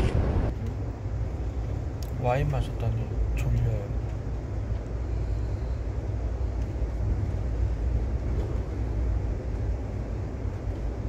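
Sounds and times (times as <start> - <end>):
train rumble from inside coach: 0.0 - 11.0.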